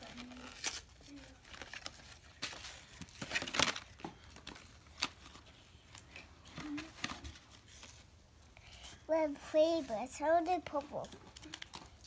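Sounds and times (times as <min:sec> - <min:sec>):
plastic packaging crinkling and tearing: 0:00.0 - 0:08.1, 0:10.6 - 0:12.0.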